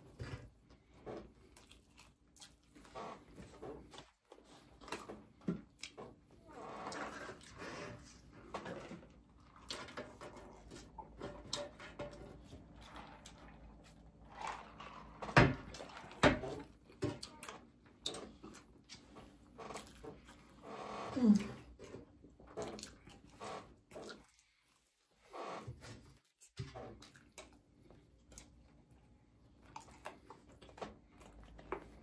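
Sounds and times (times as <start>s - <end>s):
chewing with mouth clicks: 1.3s - 6.1s, 15.7s - 20.6s, 21.4s - 24.8s, 26.2s - 32.0s.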